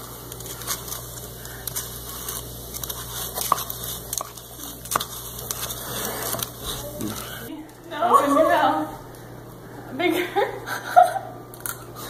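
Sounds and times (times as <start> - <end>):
spoon stirring in plastic cup: 0.3 - 7.3.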